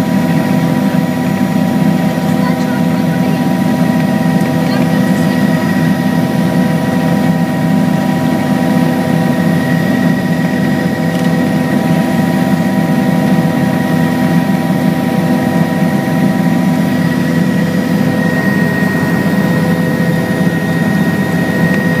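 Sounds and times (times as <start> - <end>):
helicopter low drone: 0.0 - 22.0
high whine: 6.9 - 22.0.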